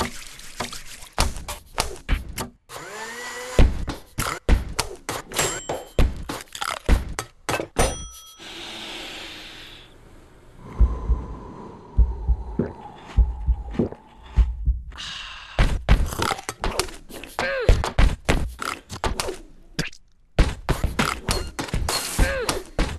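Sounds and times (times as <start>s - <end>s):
toothbrush scrubbing: 0.0s - 1.6s
sharp hits and thuds: 3.6s - 4.9s
heartbeat through stethoscope: 10.7s - 15.0s.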